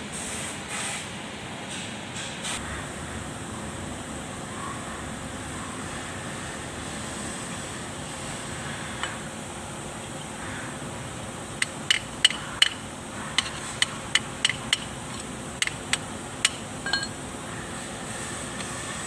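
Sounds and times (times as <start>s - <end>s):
hand tool tapping on metal: 11.6s - 12.8s, 13.4s - 17.2s.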